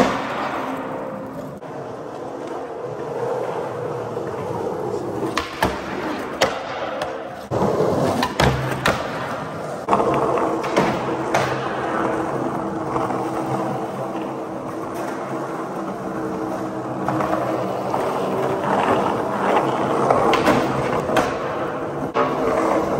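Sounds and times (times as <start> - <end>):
skateboard clacks: 0.0 - 22.9
skateboard wheels rolling on concrete: 0.0 - 22.9.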